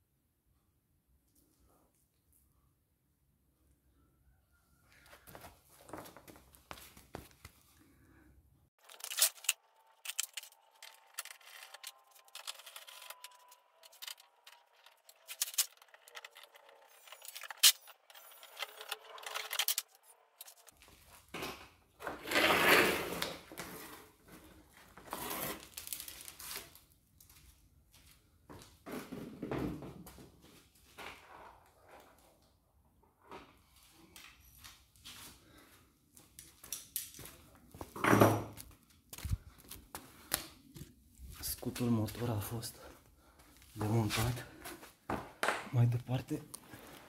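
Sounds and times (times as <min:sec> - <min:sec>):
clicks and knocks of fasteners: 0:08.8 - 0:20.6
plastic scraping and rattling: 0:08.8 - 0:20.7.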